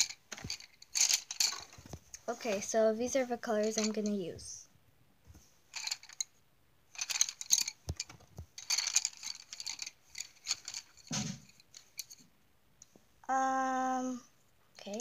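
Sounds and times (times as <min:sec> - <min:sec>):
coloured pencils clattering: 0:00.0 - 0:04.6, 0:05.3 - 0:06.3, 0:06.9 - 0:12.2, 0:14.8 - 0:15.0.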